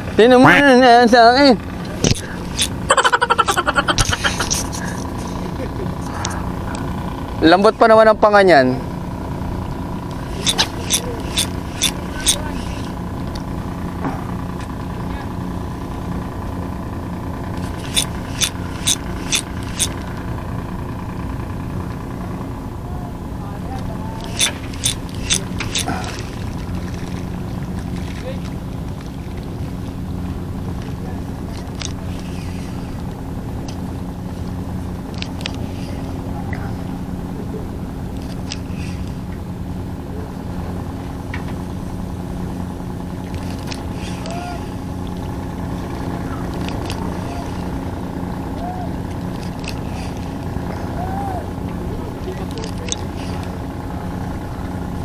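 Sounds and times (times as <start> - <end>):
engine humming: 0.0 - 55.0
sharp clicks: 10.1 - 13.5, 17.6 - 20.0, 24.2 - 26.3.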